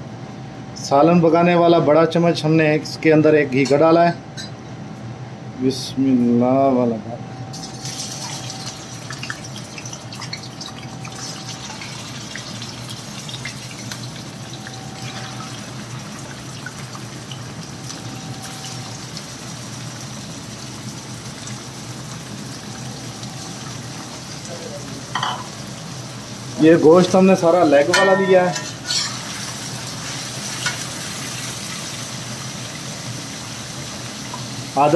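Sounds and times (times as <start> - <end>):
chicken sizzling in hot fat: 7.6 - 34.9.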